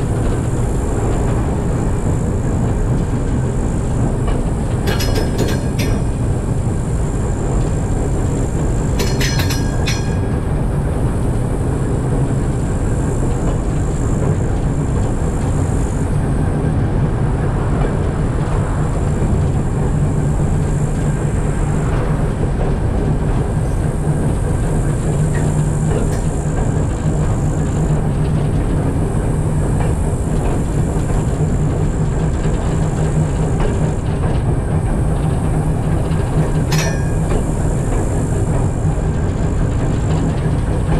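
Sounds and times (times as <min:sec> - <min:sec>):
diesel locomotive engine rumble: 0:00.0 - 0:40.9.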